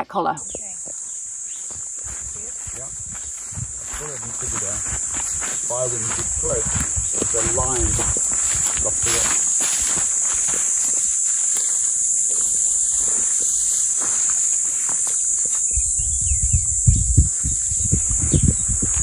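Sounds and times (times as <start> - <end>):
chorus of insects: 0.0 - 19.0
footsteps through dry grass: 0.9 - 16.1.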